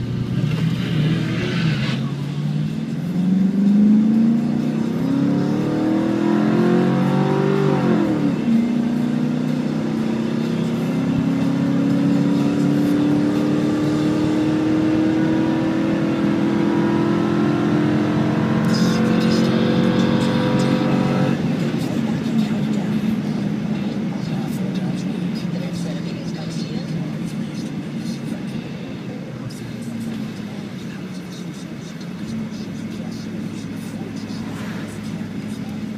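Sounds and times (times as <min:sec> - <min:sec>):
truck engine at full throttle: 0:00.0 - 0:35.9.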